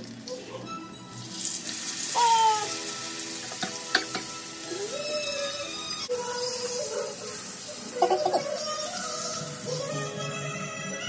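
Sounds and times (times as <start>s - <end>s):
fish sizzling in hot oil: 1.1s - 9.8s.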